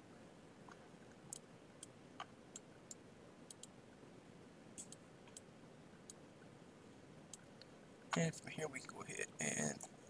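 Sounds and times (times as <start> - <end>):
quiet hiss: 0.0 - 10.0
computer mouse clicks: 0.7 - 3.7, 4.8 - 5.5.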